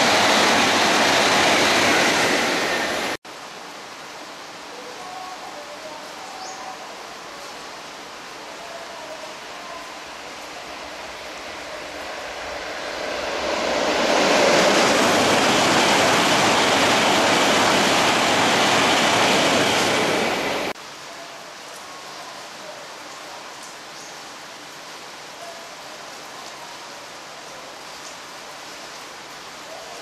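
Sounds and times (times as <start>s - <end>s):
high-speed train passing: 0.0s - 3.2s, 8.5s - 20.8s
heavy rain hissing: 0.0s - 30.0s.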